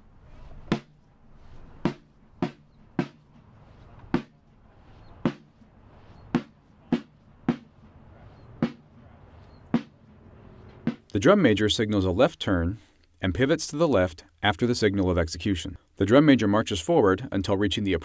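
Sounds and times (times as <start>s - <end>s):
drum beating a march: 0.7s - 1.0s, 1.8s - 11.2s.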